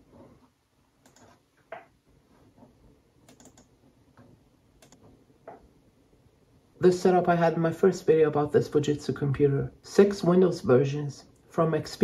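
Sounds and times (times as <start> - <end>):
keyboard keystrokes: 3.3 - 3.7.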